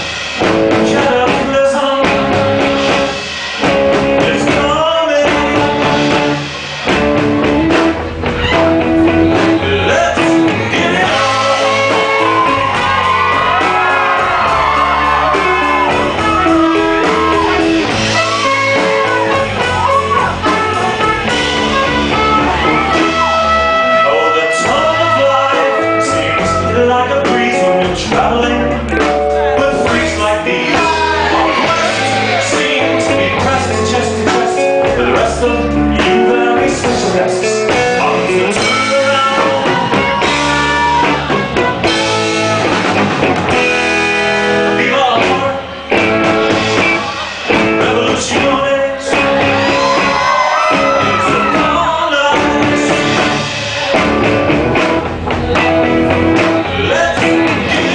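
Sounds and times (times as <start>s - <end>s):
live rock band playing: 0.0s - 57.9s
man singing into a microphone: 0.7s - 3.1s, 4.1s - 6.4s, 9.3s - 12.7s, 23.8s - 41.1s, 44.4s - 45.8s, 47.0s - 53.9s, 56.6s - 57.9s.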